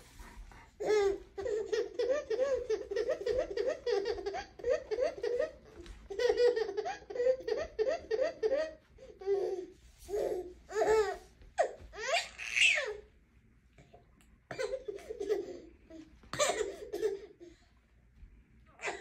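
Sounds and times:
baby laughing: 0:00.8 - 0:13.0, 0:14.5 - 0:17.5
baby squealing with laughter: 0:12.0 - 0:13.0.

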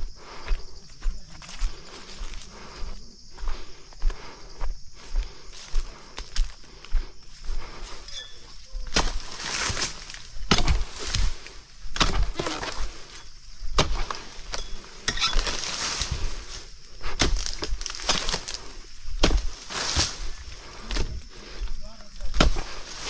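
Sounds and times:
fronds falling through foliage: 0:15.2 - 0:16.7, 0:17.4 - 0:18.7
blade cracking into fronds: 0:17.2 - 0:20.2.

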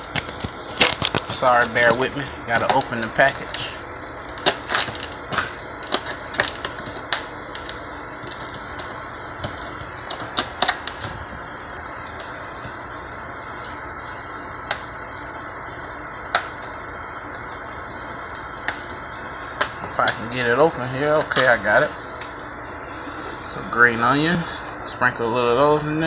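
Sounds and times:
food package crackling: 0:04.3 - 0:12.4.

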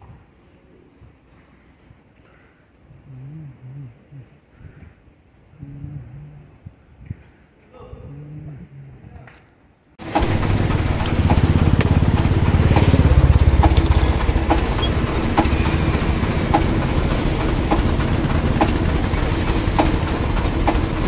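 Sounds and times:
engine running with low rumble: 0:10.0 - 0:21.0.

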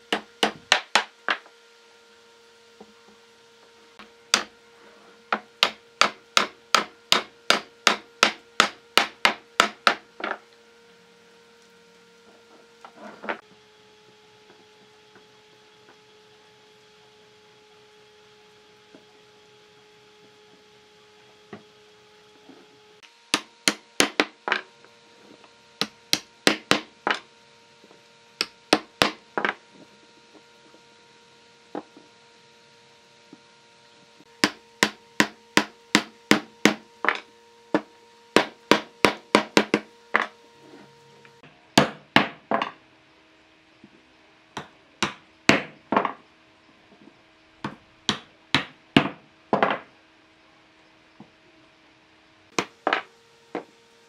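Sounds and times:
wooden mallet knocking wood: 0:05.3 - 0:10.4, 0:23.3 - 0:24.6, 0:25.8 - 0:27.2, 0:28.4 - 0:29.6, 0:34.4 - 0:40.3, 0:41.8 - 0:42.8, 0:44.6 - 0:46.2, 0:47.6 - 0:49.9.

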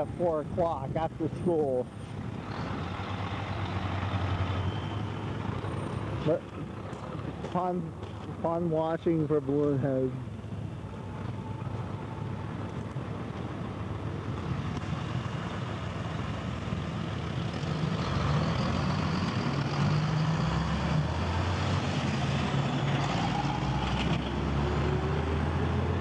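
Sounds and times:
road traffic: 0:00.0 - 0:26.0
truck driving past: 0:02.3 - 0:07.6, 0:13.3 - 0:26.0.

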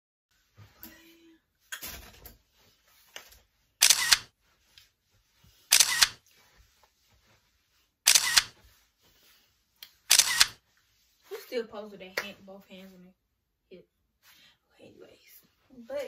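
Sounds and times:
camera shutter clicks: 0:03.8 - 0:04.3, 0:05.7 - 0:06.2, 0:08.1 - 0:08.6, 0:10.1 - 0:10.6.

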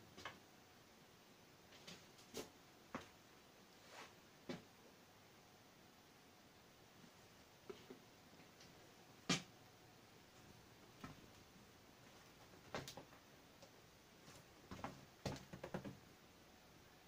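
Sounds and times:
faint sharp clicks and knocks: 0:12.4 - 0:13.8, 0:14.7 - 0:16.0.

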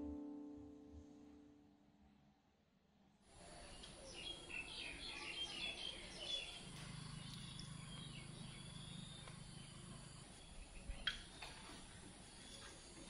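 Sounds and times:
small birds chirping: 0:03.4 - 0:13.0.

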